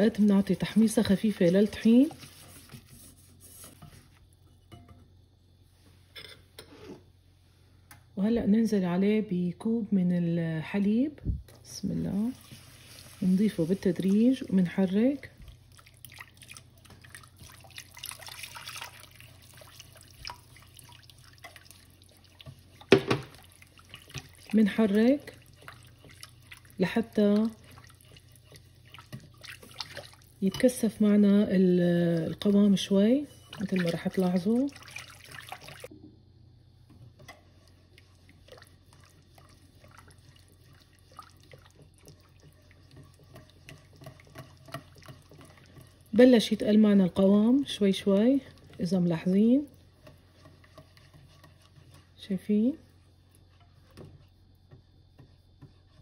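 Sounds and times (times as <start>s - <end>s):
sauce stirred in a pot: 0.0s - 4.9s, 10.8s - 35.9s, 36.6s - 56.0s
liquid dripping: 15.4s - 24.6s, 27.4s - 30.4s, 33.5s - 35.9s.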